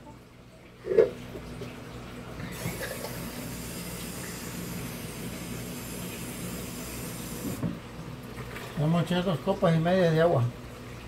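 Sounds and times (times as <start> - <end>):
faucet running into sink: 2.4 - 8.9.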